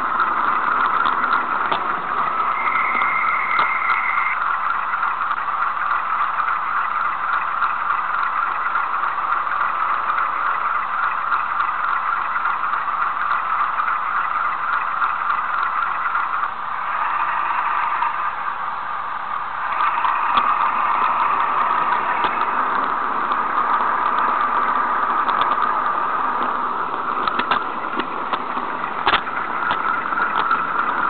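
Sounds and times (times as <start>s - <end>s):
diesel engine idle through tinny speaker: 0.0s - 31.0s.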